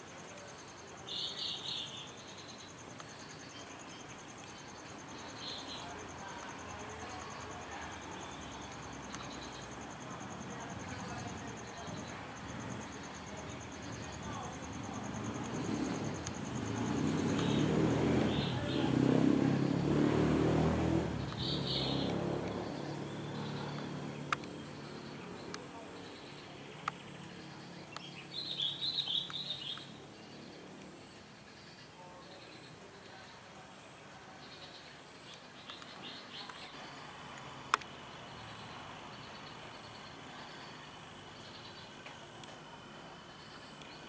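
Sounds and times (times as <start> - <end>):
insects pulsing trill: 0.0 - 19.9
insects rasping chirps: 0.0 - 44.0
vehicle engine passing: 5.2 - 31.4
high bird chirps: 27.8 - 30.0.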